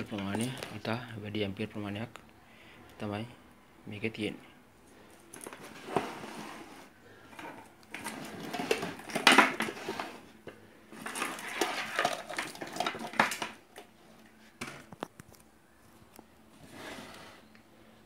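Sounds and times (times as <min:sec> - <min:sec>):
hard objects clattering: 0:05.2 - 0:15.4.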